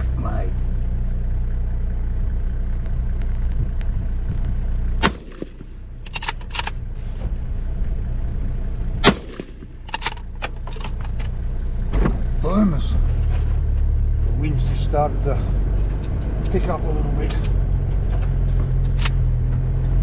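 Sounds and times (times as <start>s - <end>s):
engine idling: 0.0s - 20.0s
rifle shots: 5.0s - 5.8s, 9.0s - 9.8s.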